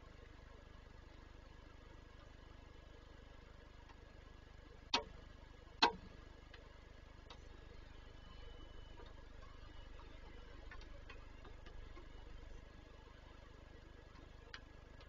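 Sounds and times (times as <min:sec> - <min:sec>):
steady low hum: 0:00.0 - 0:15.0
faint ticks: 0:04.9 - 0:15.0.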